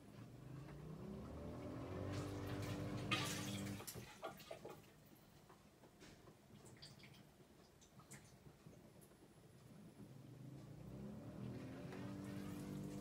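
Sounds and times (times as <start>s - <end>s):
dishwasher pump motor humming: 0.2s - 3.9s, 10.0s - 13.0s
faint drips: 2.2s - 9.7s.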